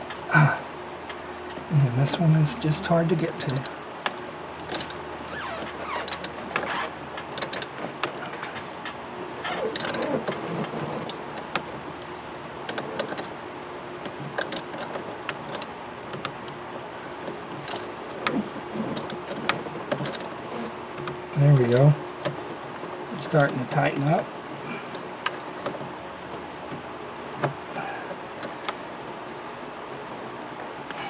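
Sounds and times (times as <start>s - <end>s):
tool rattling against metal: 3.2s - 3.8s, 4.7s - 5.1s
socket ratchet clicking: 3.4s - 3.8s, 4.7s - 5.0s, 6.0s - 6.4s, 7.2s - 7.7s, 9.8s - 10.1s, 14.3s - 14.8s, 15.4s - 15.7s, 17.7s - 17.9s.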